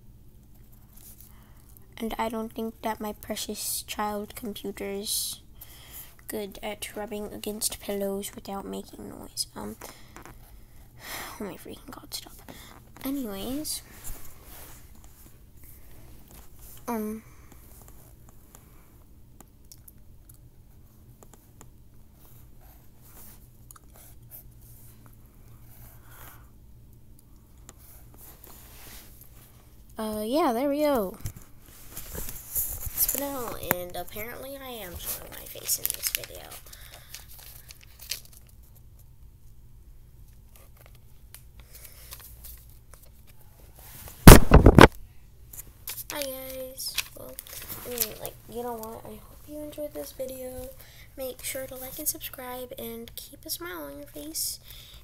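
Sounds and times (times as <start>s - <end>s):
steady low hum: 0.0s - 55.0s
paper rustling: 34.8s - 38.6s, 45.9s - 49.0s.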